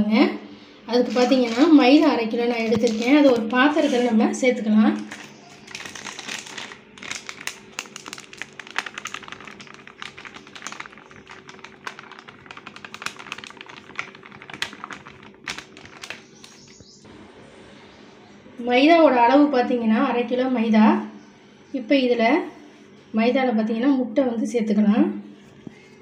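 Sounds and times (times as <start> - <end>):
plastic packet crinkling: 1.0 - 2.0, 2.6 - 4.1, 5.0 - 16.9.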